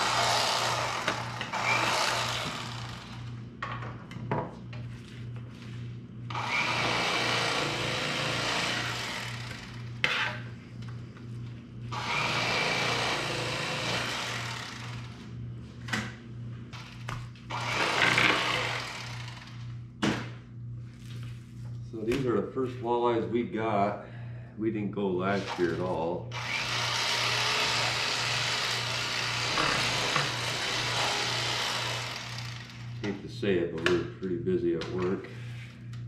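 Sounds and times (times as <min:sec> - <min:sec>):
electric knife cutting fish: 0:00.0 - 0:03.3, 0:06.3 - 0:10.2, 0:11.9 - 0:15.2, 0:16.8 - 0:19.7, 0:25.3 - 0:33.0.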